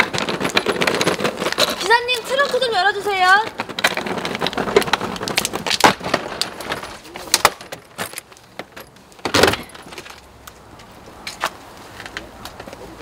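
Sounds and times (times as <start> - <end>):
suitcase clicking and rattling: 0.0 - 10.3
suitcase thump: 5.8 - 9.8.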